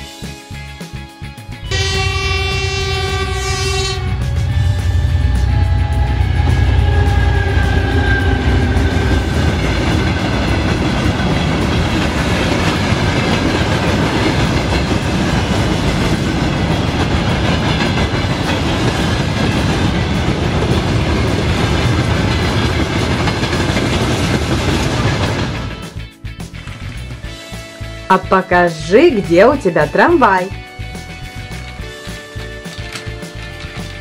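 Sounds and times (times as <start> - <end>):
tone: 1.6 - 8.8, 28.1 - 30.6
toy train clatter: 31.6 - 34.0.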